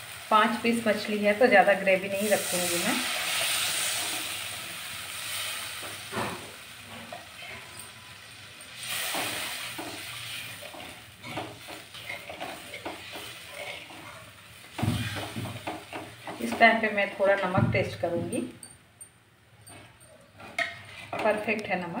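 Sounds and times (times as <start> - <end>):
water sizzling in hot pan: 0.0 - 17.2
metal spatula scraping pan: 6.0 - 17.5, 19.6 - 21.6
thump: 14.8 - 15.6.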